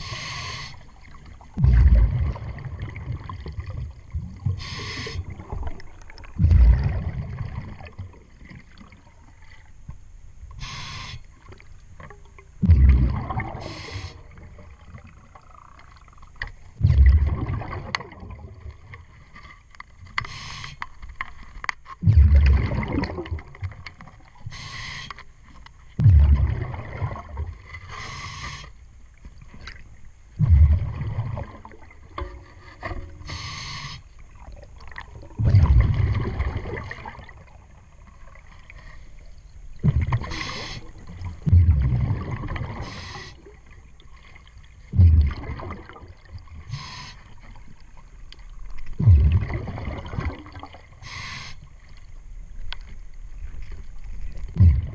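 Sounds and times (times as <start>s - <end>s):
regulator inhalation hiss: 0.0s - 0.9s, 4.6s - 5.3s, 10.6s - 11.3s, 13.6s - 14.3s, 20.3s - 20.8s, 24.5s - 25.2s, 27.9s - 28.8s, 33.3s - 34.1s, 40.3s - 40.9s, 42.8s - 43.4s, 46.7s - 47.4s, 51.0s - 51.7s
exhaled bubbles rushing: 1.5s - 9.5s, 12.6s - 16.2s, 16.8s - 18.9s, 22.0s - 24.3s, 26.0s - 27.7s, 30.4s - 32.2s, 34.3s - 37.8s, 39.8s - 43.6s, 44.9s - 46.8s, 48.9s - 51.0s, 54.3s - 54.9s
faint clicks: 51.8s - 53.9s.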